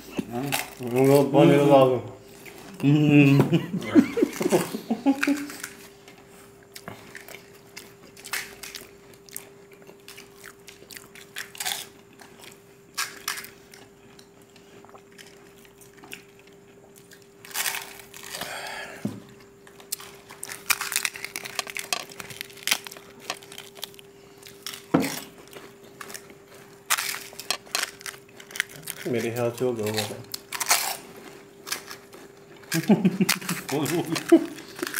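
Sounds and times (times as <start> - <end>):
faint steady hum: 0.0 - 34.9
chewing: 4.0 - 18.5, 19.3 - 34.9
crisp shells crunching: 7.1 - 13.8, 15.2 - 18.6, 19.6 - 34.9.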